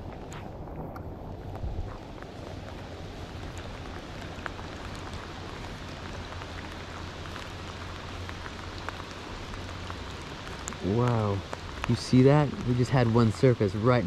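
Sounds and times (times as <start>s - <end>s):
rain falling on river: 0.0s - 14.0s
single raindrop ticks: 3.4s - 13.2s.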